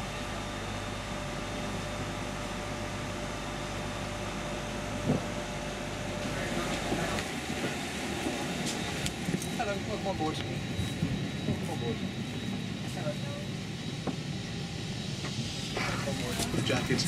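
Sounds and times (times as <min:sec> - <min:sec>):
airliner mechanical drone: 0:00.0 - 0:17.0.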